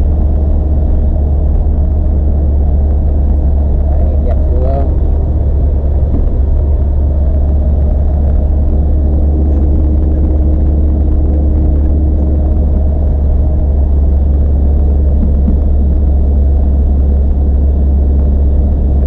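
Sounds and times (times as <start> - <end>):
vehicle engine and road noise: 0.0 - 19.0.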